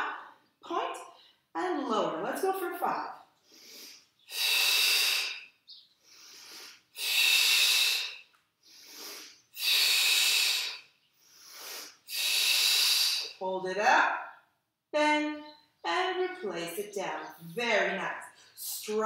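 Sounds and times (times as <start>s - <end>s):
woman breathing heavily: 3.4s - 13.4s.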